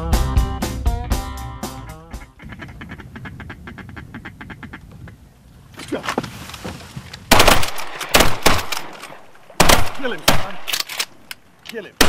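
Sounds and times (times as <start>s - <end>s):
duck quacking: 2.0s - 5.2s
shotgun blast: 7.3s - 9.0s, 9.6s - 10.8s.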